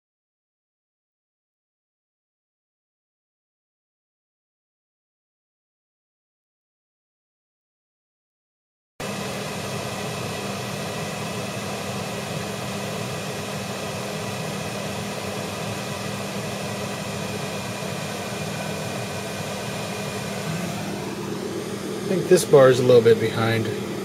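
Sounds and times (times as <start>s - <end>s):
fan hum and hiss: 9.0s - 24.0s
low hum: 11.7s - 24.0s.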